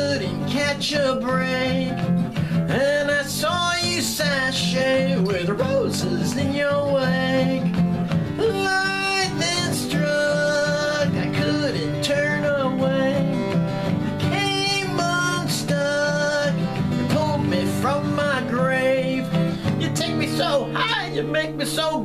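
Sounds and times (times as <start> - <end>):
man singing rock song: 0.0 - 13.5, 14.2 - 22.0
acoustic guitar: 0.0 - 22.0.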